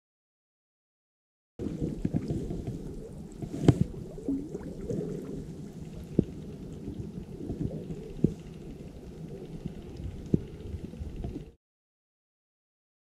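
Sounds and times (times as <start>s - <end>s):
muffled low rumble: 1.6s - 11.6s.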